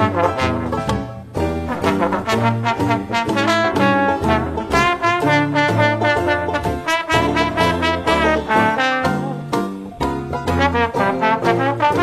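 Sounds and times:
jazz with trombone and trumpet: 0.0 - 12.0.

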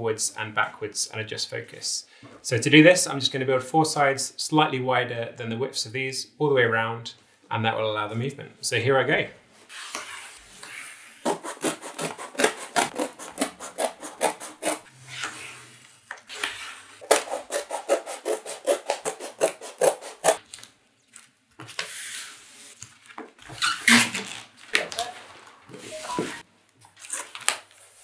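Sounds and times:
scissors cutting cardboard: 9.7 - 15.4, 16.3 - 20.4.

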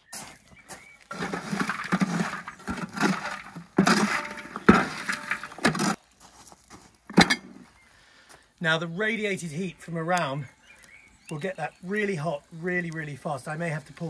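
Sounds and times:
coals crunching and clinking: 0.2 - 14.0
metal spade scraping charcoal: 1.0 - 6.1, 7.1 - 7.7
sharp metal clank: 1.8 - 6.0.

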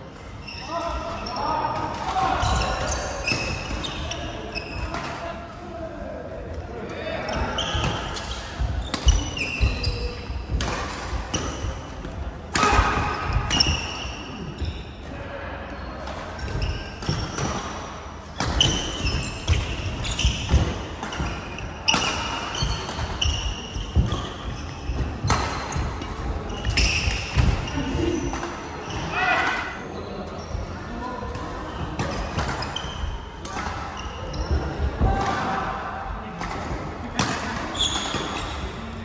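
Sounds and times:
shoes squeaking on court: 0.4 - 5.1, 7.2 - 12.3, 13.0 - 15.0, 18.4 - 29.2, 30.0 - 34.8, 37.6 - 38.9
racket hitting shuttlecock: 7.8 - 14.0, 18.4 - 27.7.

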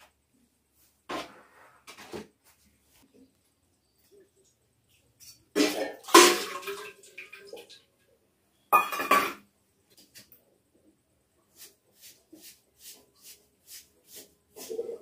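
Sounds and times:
water pouring and splashing: 5.6 - 7.8.

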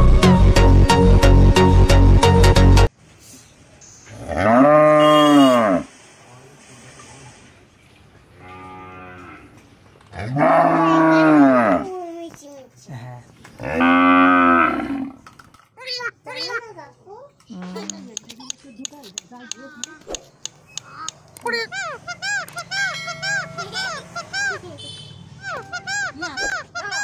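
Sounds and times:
cow mooing: 4.2 - 5.9, 10.2 - 11.9, 13.6 - 15.2.

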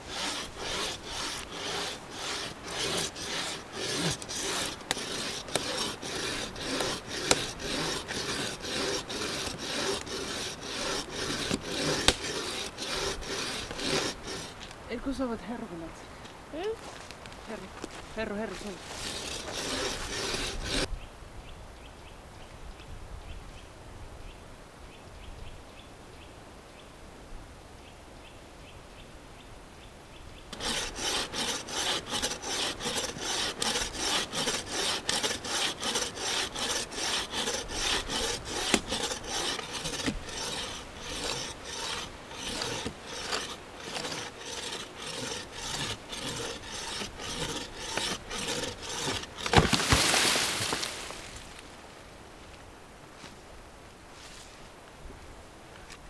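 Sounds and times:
frame saw rasping through wood: 0.0 - 14.6, 18.6 - 20.9, 30.5 - 51.1.

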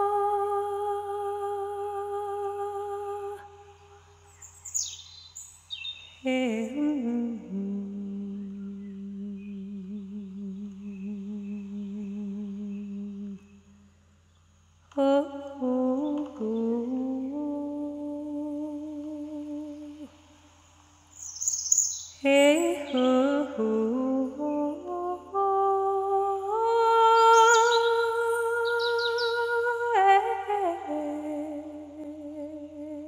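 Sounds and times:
person humming a melody: 0.0 - 4.0, 6.2 - 13.6, 14.9 - 20.2, 22.2 - 33.0
high bird chirps: 4.3 - 6.3, 21.1 - 23.2.

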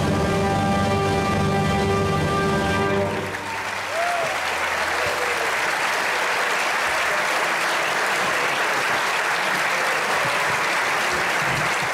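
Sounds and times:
audience applauding: 2.7 - 11.9.

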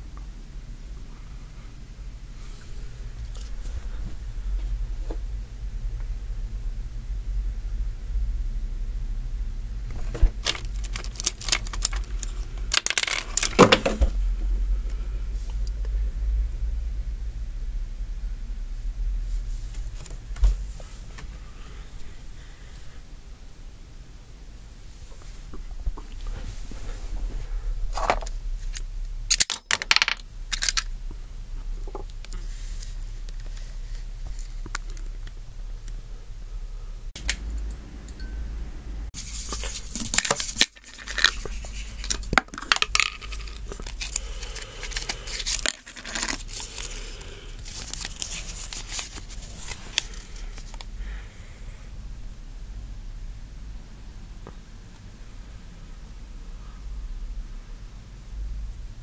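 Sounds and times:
low steady hum: 0.0 - 59.0
scattered clicks: 10.0 - 13.7
plastic toy parts clicking: 10.4 - 14.0, 29.3 - 30.9, 44.8 - 46.9.

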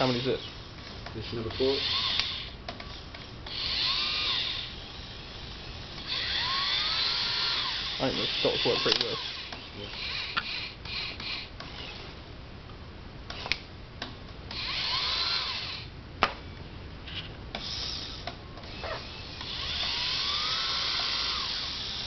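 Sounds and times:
small electric motors whirring: 0.0 - 12.2, 13.3 - 13.6, 14.5 - 22.0
sharp clicks: 13.3 - 14.7.

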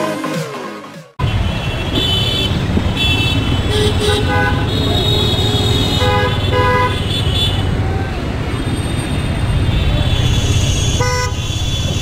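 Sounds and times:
traffic engines rumbling: 0.0 - 12.0
car horns honking: 1.2 - 7.8, 9.6 - 12.0.

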